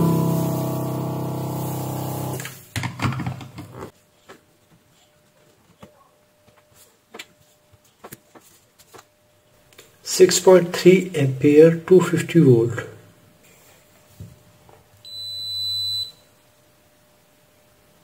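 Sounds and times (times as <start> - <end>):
vacuum pump humming: 0.0 - 2.6.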